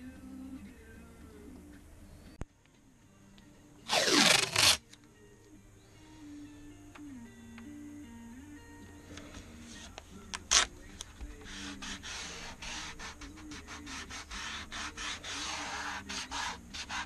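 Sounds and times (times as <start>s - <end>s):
faint background music: 0.0s - 17.0s
fingers rubbing masking tape: 3.9s - 4.8s, 9.7s - 17.0s.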